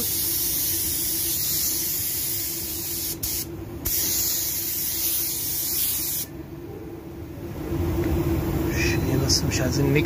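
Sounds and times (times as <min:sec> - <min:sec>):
paint spray gun hissing: 0:00.0 - 0:06.3.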